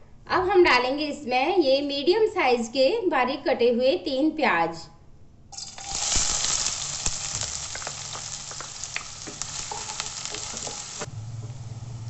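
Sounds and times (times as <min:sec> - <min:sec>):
onions sizzling in oil: 0:05.6 - 0:12.0
spatula scraping pan: 0:08.5 - 0:11.1
steady low hum: 0:10.8 - 0:12.0.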